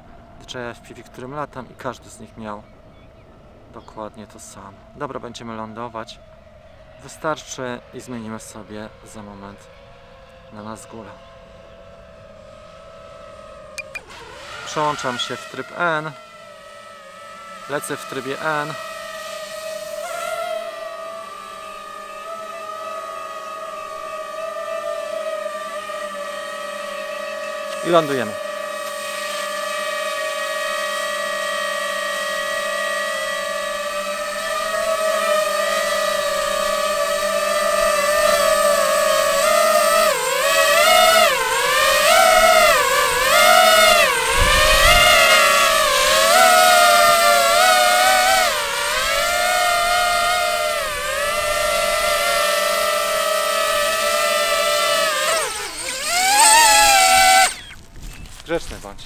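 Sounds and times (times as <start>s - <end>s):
drone propellers whining: 0.0s - 58.5s.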